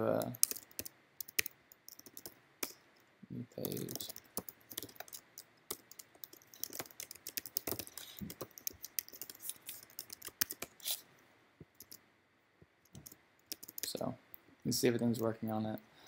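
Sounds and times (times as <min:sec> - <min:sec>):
typing on computer keyboard: 0:00.2 - 0:02.8, 0:03.6 - 0:10.8, 0:11.8 - 0:12.0, 0:12.9 - 0:14.0.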